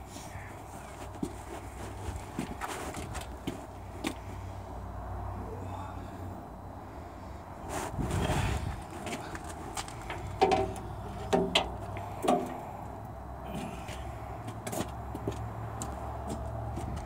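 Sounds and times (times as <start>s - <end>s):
steady low hum: 0.0s - 17.0s
sharp metal clanks: 10.1s - 12.6s.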